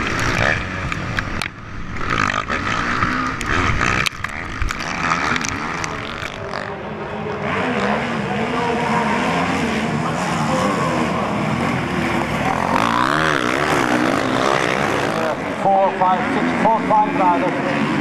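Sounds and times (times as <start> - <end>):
motocross bike engines revving: 0.0 - 18.0.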